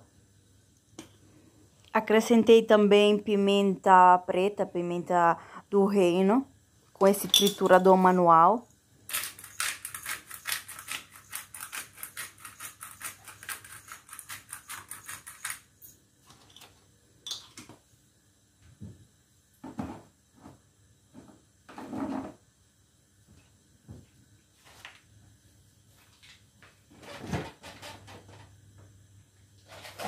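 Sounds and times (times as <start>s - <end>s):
pepper grinder clicking: 9.1s - 15.6s.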